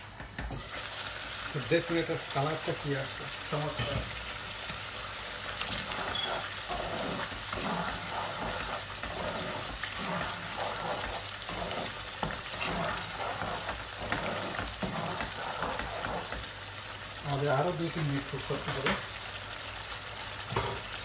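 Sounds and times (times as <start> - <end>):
gravy sizzling in a pan: 0.0 - 21.0
spatula scraping a pan: 3.6 - 17.0.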